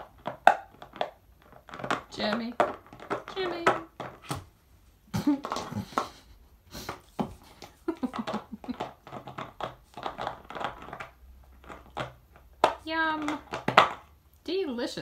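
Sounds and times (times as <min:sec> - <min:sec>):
dog chewing plastic bottle: 0:00.0 - 0:04.5, 0:06.8 - 0:14.2.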